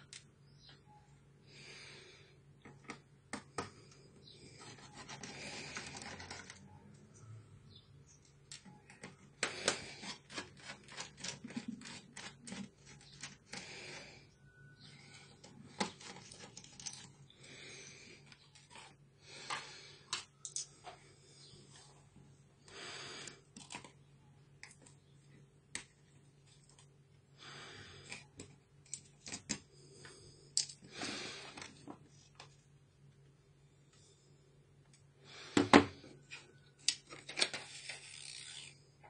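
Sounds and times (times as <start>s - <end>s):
screwdriver working small screws: 37.6s - 38.8s.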